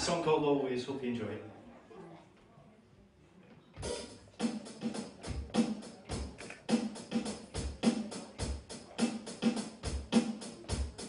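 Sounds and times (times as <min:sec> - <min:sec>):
kick drum and snare beat: 0:03.8 - 0:11.0
live rock band playing: 0:03.8 - 0:11.0.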